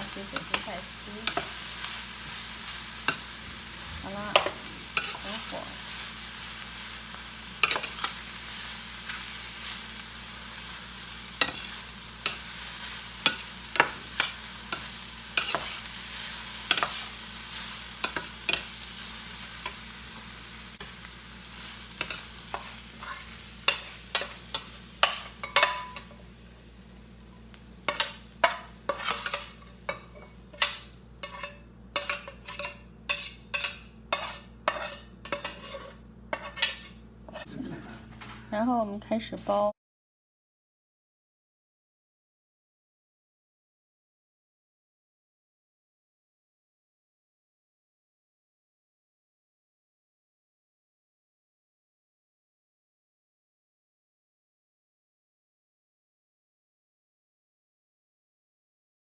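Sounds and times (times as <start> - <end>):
vegetables sizzling in skillet: 0.0 - 37.5
metal spoon scraping pan: 0.2 - 6.1, 7.5 - 18.8, 22.0 - 26.2, 27.9 - 38.2.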